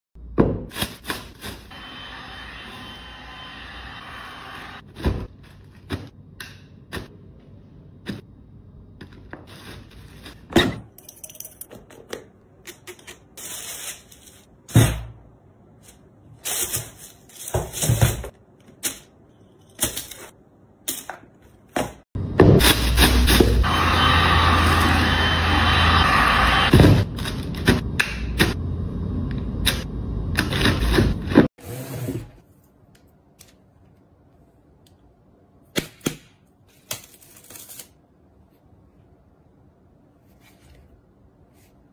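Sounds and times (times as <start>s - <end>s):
plastic wrap and tissue rustling: 13.3s - 14.5s, 15.8s - 18.3s.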